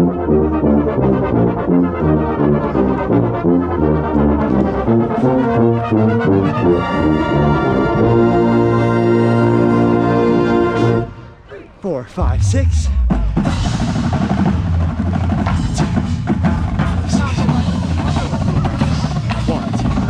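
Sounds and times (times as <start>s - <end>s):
brass line playing loud: 0.0s - 11.1s
contrabass low notes: 11.8s - 17.2s.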